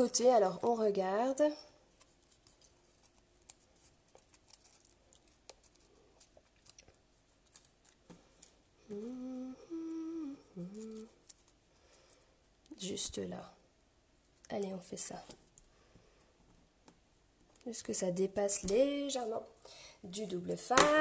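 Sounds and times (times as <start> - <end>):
woman humming: 8.8 - 11.2.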